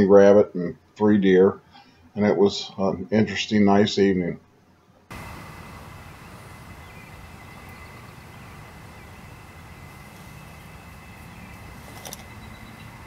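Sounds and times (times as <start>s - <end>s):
low rumble: 5.1s - 11.8s
thin steady high tones: 5.1s - 13.0s.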